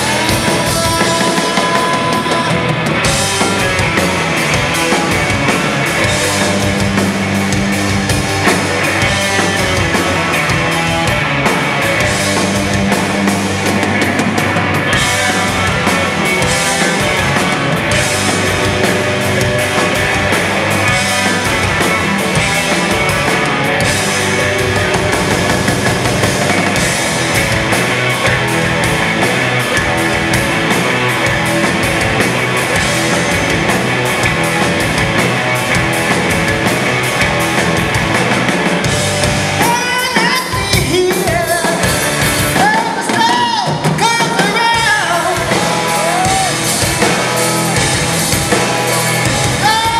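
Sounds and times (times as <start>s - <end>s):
man singing: 0.0s - 3.6s, 39.6s - 42.0s, 42.6s - 46.6s, 49.6s - 49.9s
distorted electric guitars: 0.0s - 49.9s
drums with cymbal strokes: 0.0s - 49.9s.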